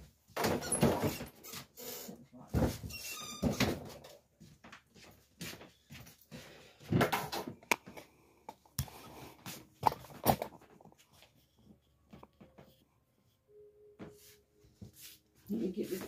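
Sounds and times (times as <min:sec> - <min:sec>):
phone handling rustling: 0:09.8 - 0:11.0.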